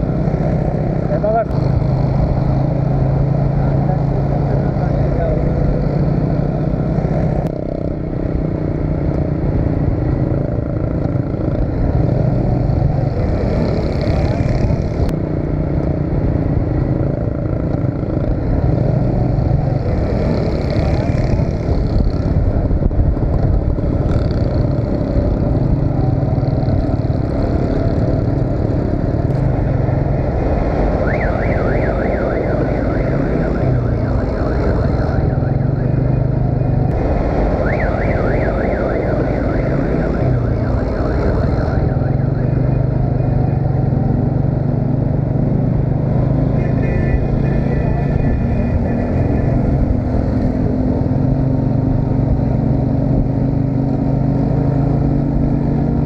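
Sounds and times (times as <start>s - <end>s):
traffic hum: 0.0s - 56.0s
wind and road noise: 0.0s - 56.0s
warbling siren-like tone: 24.7s - 44.5s, 45.8s - 52.5s.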